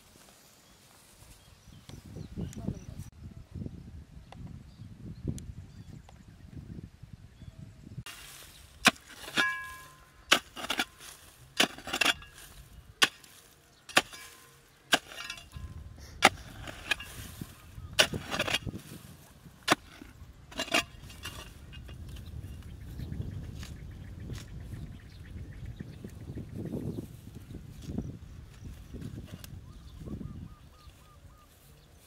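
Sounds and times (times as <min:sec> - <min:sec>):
digging tool chopping into soil: 0:08.1 - 0:22.2.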